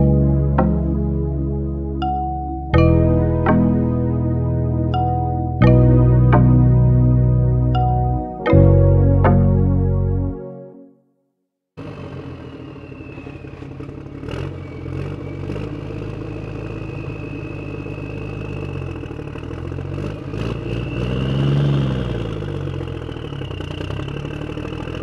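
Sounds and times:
vehicle engine idling and revving: 11.8s - 25.0s.

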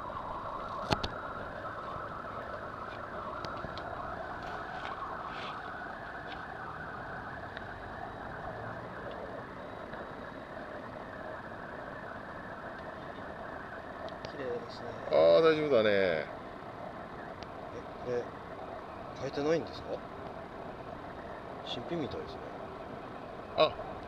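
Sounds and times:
steady mechanical drone: 0.0s - 24.0s.

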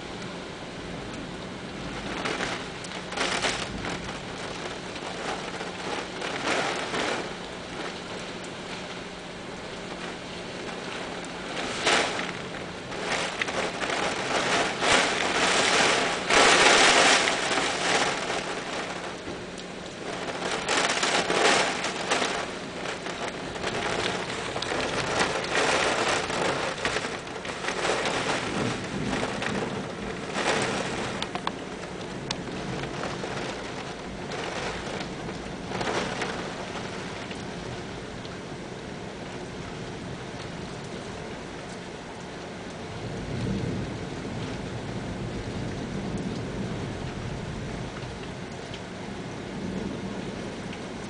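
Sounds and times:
heavy rain pouring: 0.0s - 51.0s.

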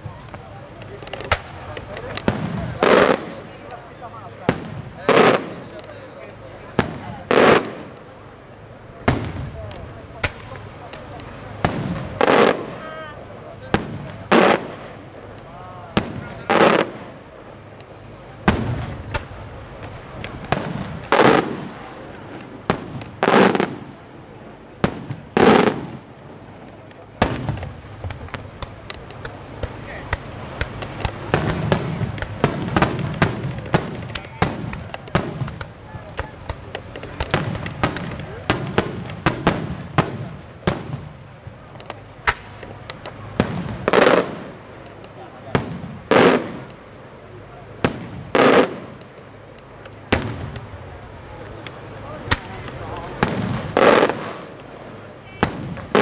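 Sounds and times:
echoing firework reports: 0.0s - 56.0s
firework shells bursting: 6.7s - 8.2s, 13.7s - 46.9s, 47.7s - 56.0s.

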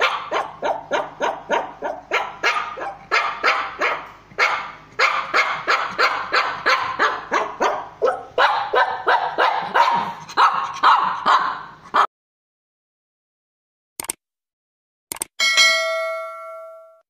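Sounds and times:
small dog yapping rapidly: 0.0s - 12.1s.

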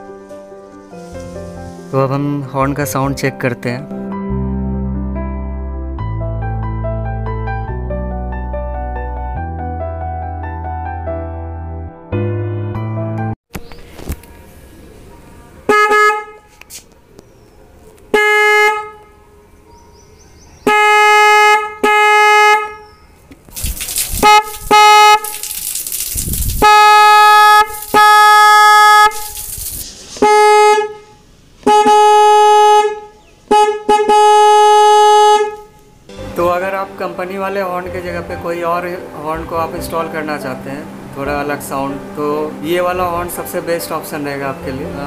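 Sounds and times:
scooter horn honking: 15.7s - 16.5s, 18.1s - 19.2s, 20.6s - 22.9s, 24.2s - 25.2s, 26.6s - 29.2s, 30.2s - 35.7s
loud hiss-like rush: 29.1s - 30.5s.

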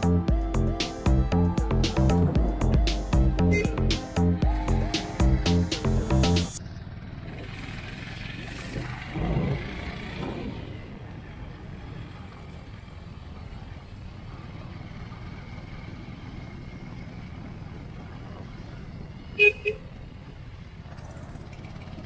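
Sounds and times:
motorcycle engine running: 0.0s - 22.0s
wind and road noise: 0.0s - 22.0s
vehicle horn beeps: 3.5s - 3.8s, 19.4s - 20.0s.

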